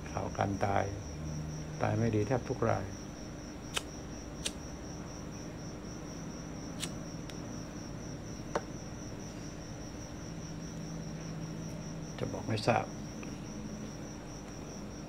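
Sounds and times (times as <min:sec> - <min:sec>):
cricket trilling: 0:00.0 - 0:15.0
faint low hum: 0:00.0 - 0:15.0
sharp clicks: 0:03.7 - 0:04.6.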